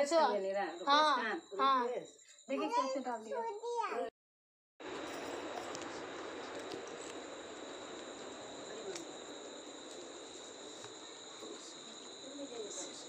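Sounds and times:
crickets trilling: 0:00.0 - 0:04.0, 0:04.8 - 0:13.0
faint hiss: 0:04.8 - 0:13.0.

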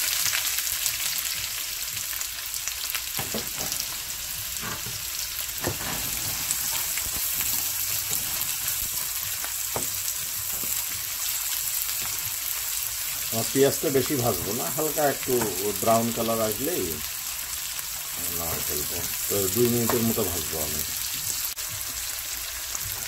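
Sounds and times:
onions sizzling in oil: 0:00.0 - 0:23.0
spatula scraping a pan: 0:03.2 - 0:13.3.

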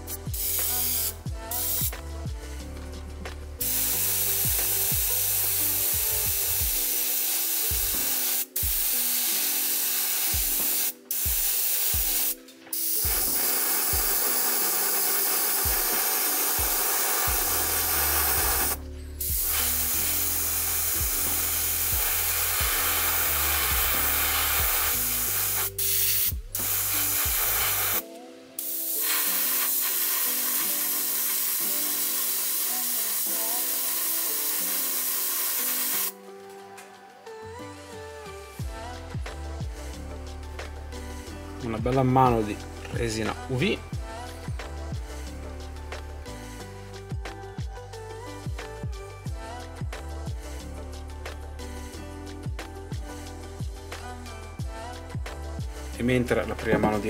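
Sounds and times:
airbrush hissing: 0:00.0 - 0:02.2, 0:03.6 - 0:28.0, 0:28.6 - 0:36.2.

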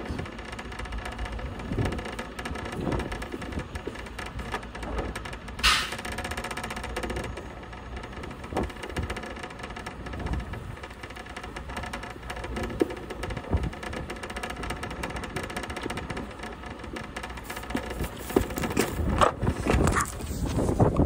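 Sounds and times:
engine idling: 0:00.0 - 0:21.0
phone handling knocks and rustling: 0:17.3 - 0:21.0.

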